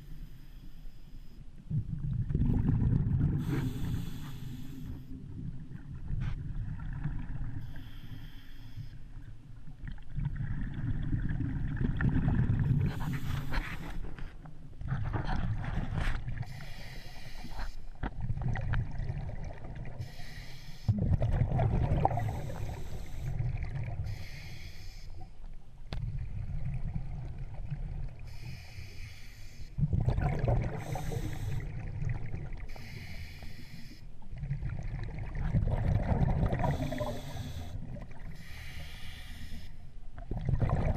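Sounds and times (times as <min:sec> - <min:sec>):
muffled underwater rumble and gurgling: 0:00.0 - 0:40.9
short hissing: 0:32.7 - 0:34.0.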